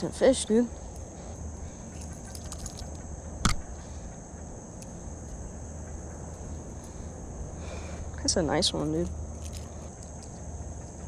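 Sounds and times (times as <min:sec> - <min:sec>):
high-pitched insect chorus: 0:00.0 - 0:11.0
sharp click: 0:03.4 - 0:03.7.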